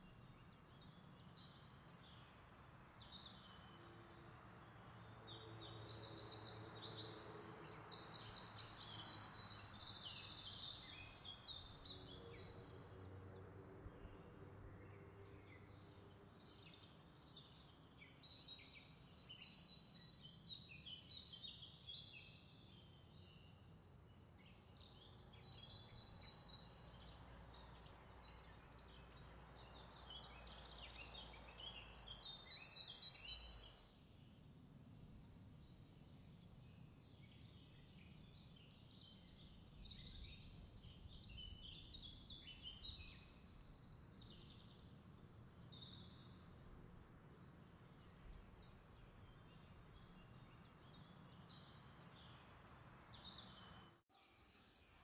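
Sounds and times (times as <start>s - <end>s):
songbirds trilling and chirping: 0.0s - 55.0s.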